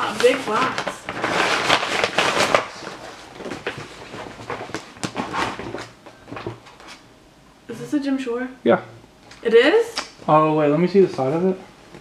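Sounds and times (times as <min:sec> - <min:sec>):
plastic bag crinkling and rustling: 0:00.0 - 0:07.0.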